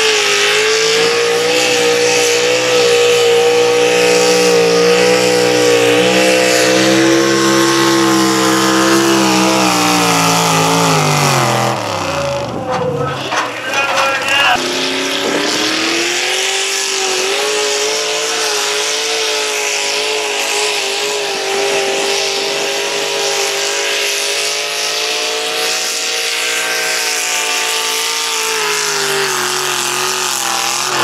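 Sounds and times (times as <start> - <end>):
truck engine at full throttle: 0.0 - 31.0.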